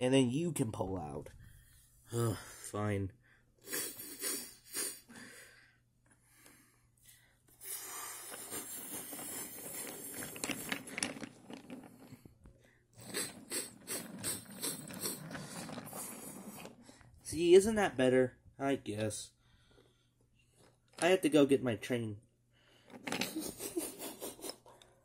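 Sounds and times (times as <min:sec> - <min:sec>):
toy trains rolling on wooden track: 0:08.2 - 0:12.2, 0:13.0 - 0:16.9, 0:22.9 - 0:23.8.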